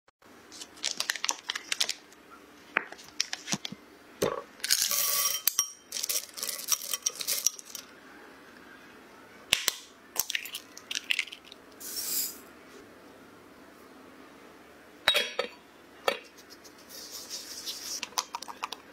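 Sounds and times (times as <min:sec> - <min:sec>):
butter wrapper crinkling: 0:00.6 - 0:02.0.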